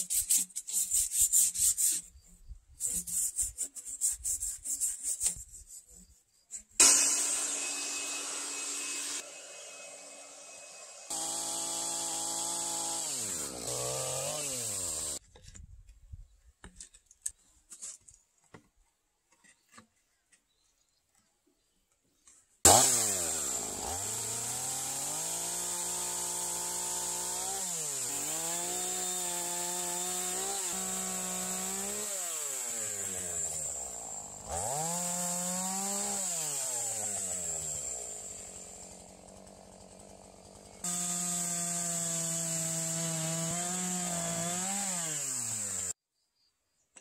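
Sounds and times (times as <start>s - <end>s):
chainsaw revving cutting log: 6.8s - 15.2s, 22.7s - 46.0s.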